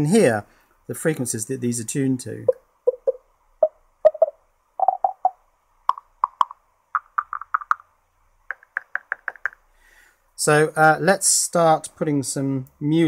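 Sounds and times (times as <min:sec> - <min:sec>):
pitched electronic plops: 0:02.5 - 0:07.8.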